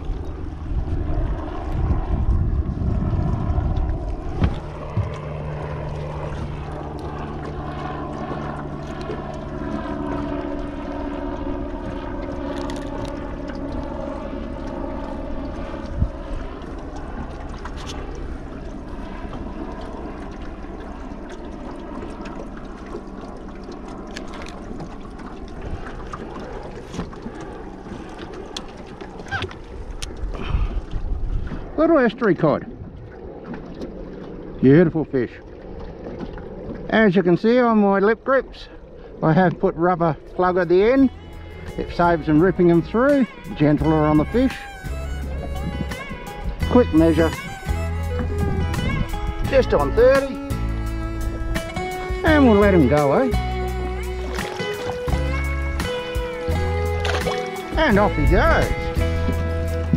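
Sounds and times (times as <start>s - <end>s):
steady low hum: 0.0s - 59.9s
water lapping around boat: 0.0s - 59.9s
wind: 0.0s - 59.9s
fishing tackle clicks: 57.0s - 57.5s.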